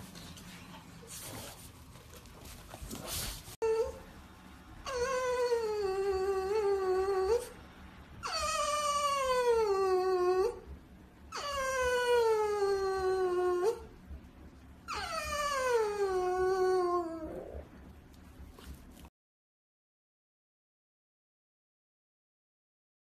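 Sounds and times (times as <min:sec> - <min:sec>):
dog howling: 0:14.9 - 0:17.7.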